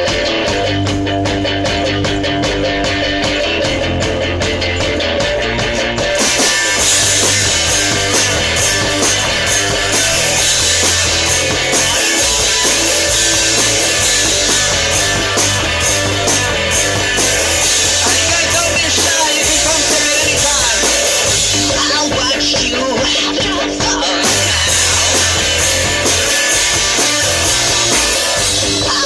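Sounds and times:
drum kit with cymbals: 0:00.0 - 0:29.0
electric guitar strummed: 0:00.0 - 0:29.0.

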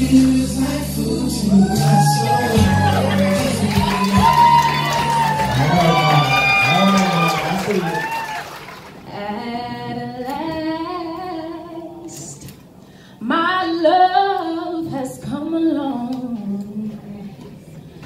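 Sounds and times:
woman singing unaccompanied: 0:00.0 - 0:04.6, 0:09.1 - 0:12.6, 0:13.2 - 0:17.6
singer breath: 0:12.8 - 0:13.2.

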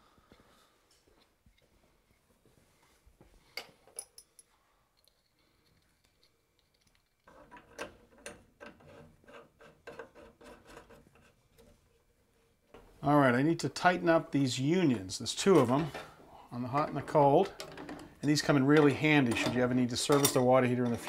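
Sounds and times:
small clicks and rattles: 0:05.0 - 0:11.7.

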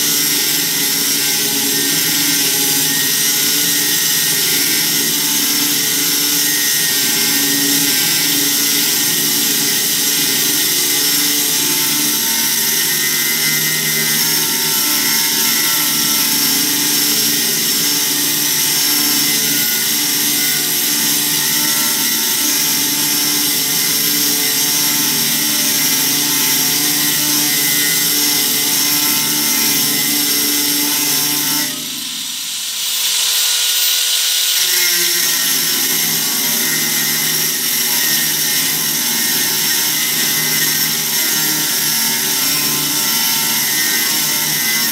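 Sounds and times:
angle grinder cutting steel: 0:00.0 - 0:44.9.

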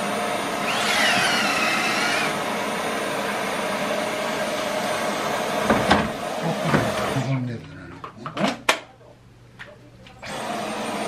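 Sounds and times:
electric drill whine: 0:00.0 - 0:05.7, 0:10.2 - 0:11.0
electric drill whirring: 0:00.0 - 0:06.3, 0:10.2 - 0:11.0.

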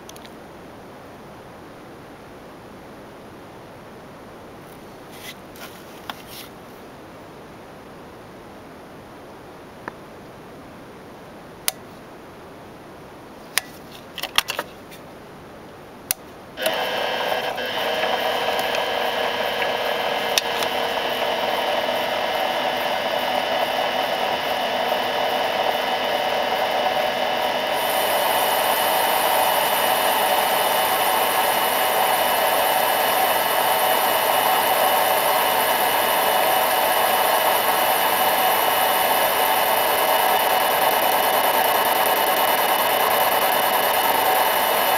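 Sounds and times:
high hiss: 0:16.6 - 0:44.9
lathe motor whine: 0:16.6 - 0:44.9.

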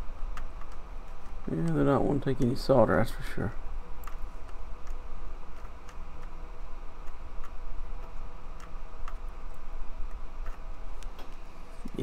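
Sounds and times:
steady low hum: 0:00.0 - 0:12.0
faint irregular ticks: 0:04.0 - 0:06.4, 0:07.0 - 0:11.1.

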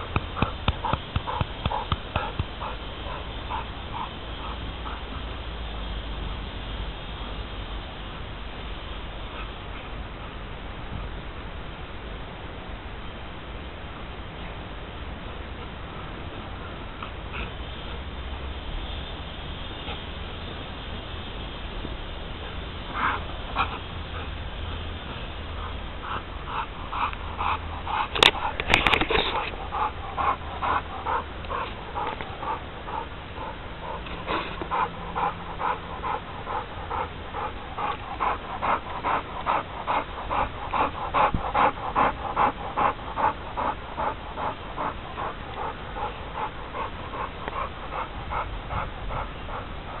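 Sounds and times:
dog panting: 0:00.0 - 0:05.3, 0:22.9 - 0:24.4, 0:25.5 - 0:50.0.

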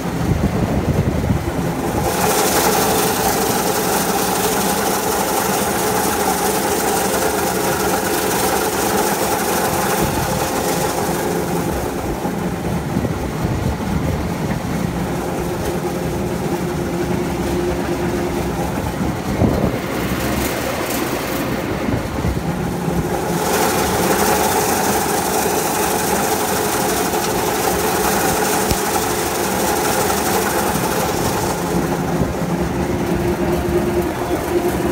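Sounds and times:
tractor diesel engine running: 0:00.0 - 0:34.9.

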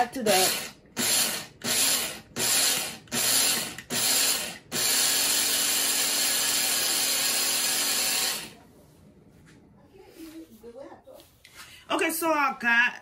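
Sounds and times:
blade coffee grinder grinding: 0:00.3 - 0:08.6.

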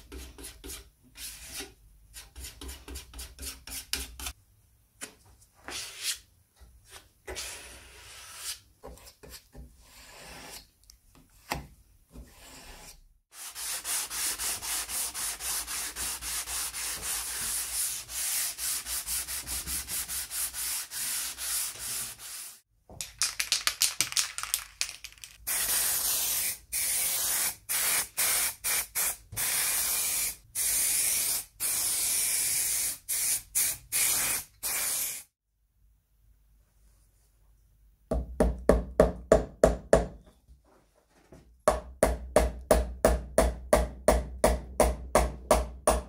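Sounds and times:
hand sanding wood: 0:13.3 - 0:22.6.

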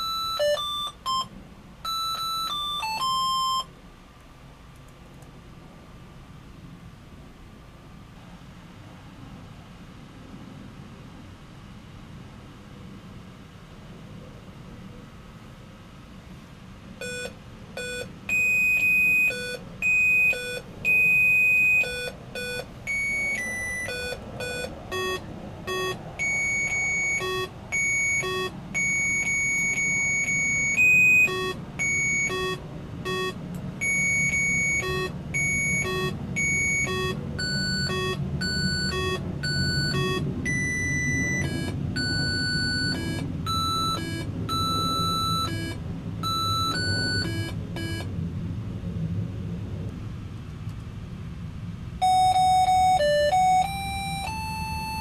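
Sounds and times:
electronic beep melody: 0:00.0 - 0:03.7, 0:17.0 - 0:48.1, 0:52.0 - 0:55.0.

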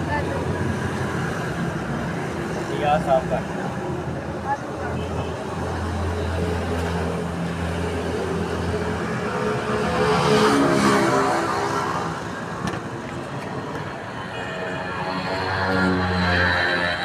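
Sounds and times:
street noise: 0:00.0 - 0:17.0
vehicle passing: 0:05.8 - 0:12.6, 0:13.3 - 0:17.0.

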